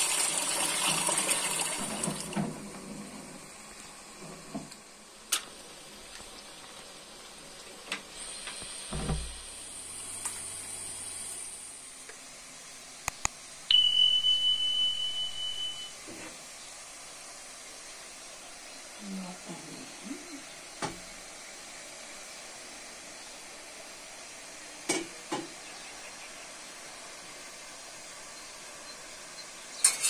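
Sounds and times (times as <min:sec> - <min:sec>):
loud high beep: 0:13.7 - 0:16.0.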